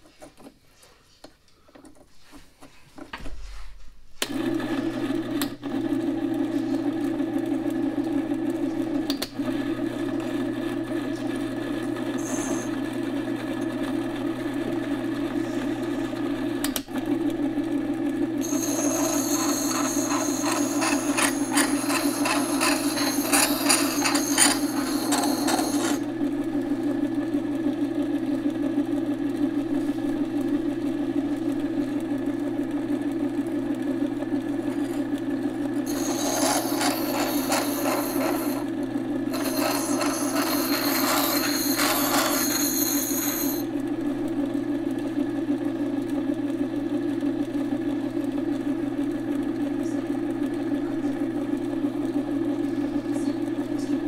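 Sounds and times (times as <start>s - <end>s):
electric motor humming: 11.8s - 12.8s, 18.4s - 26.2s, 35.9s - 38.7s, 39.3s - 43.7s
steel grinding on stone wheel: 12.2s - 12.7s, 18.4s - 26.0s, 34.7s - 35.1s, 35.8s - 38.7s, 39.3s - 43.7s.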